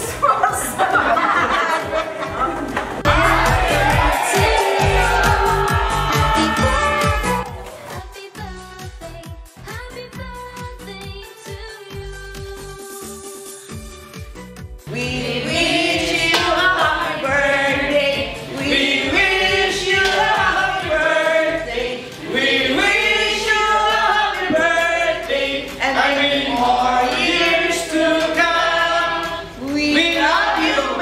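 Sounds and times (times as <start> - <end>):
choir singing: 3.1 - 7.6, 14.9 - 31.0.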